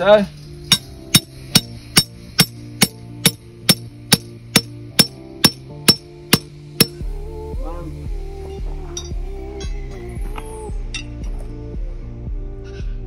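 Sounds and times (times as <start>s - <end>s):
hammer striking metal pin: 0.6s - 7.0s.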